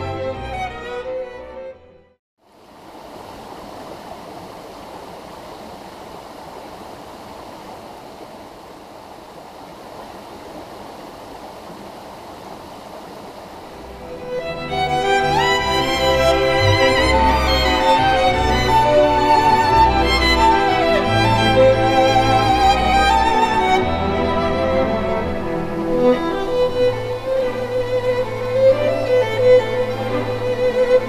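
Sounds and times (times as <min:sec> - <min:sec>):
violin music: 0:00.0 - 0:02.2, 0:13.8 - 0:31.0
stream rushing over rocks: 0:02.4 - 0:31.0.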